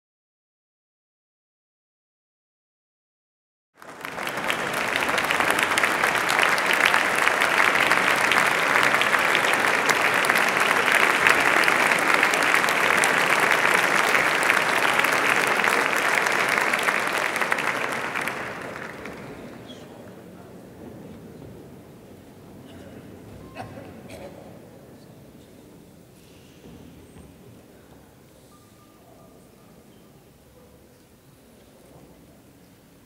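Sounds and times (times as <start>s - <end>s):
audience applauding: 3.8s - 20.6s.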